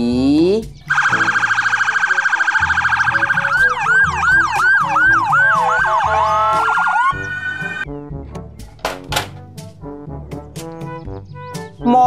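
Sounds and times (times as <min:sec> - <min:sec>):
electronic siren: 0:00.9 - 0:07.9.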